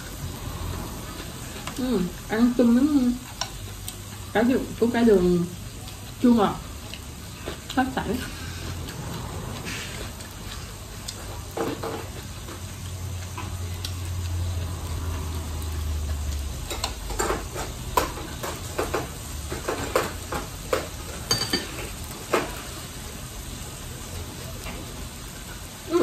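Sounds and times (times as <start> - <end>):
meat sizzling on grill: 0.0 - 26.0
chopsticks clicking and tapping: 3.3 - 4.2.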